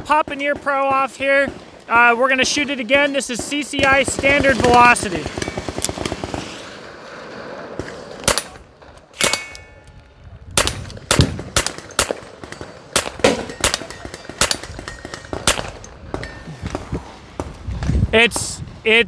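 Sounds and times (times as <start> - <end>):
suppressed pistol shots: 8.2 - 10.0, 10.6 - 16.3.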